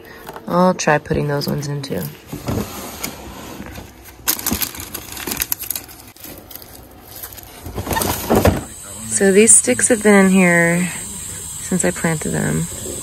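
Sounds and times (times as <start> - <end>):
rummaging in plastic drawer: 0.4 - 8.7
small items clattering: 4.2 - 8.8.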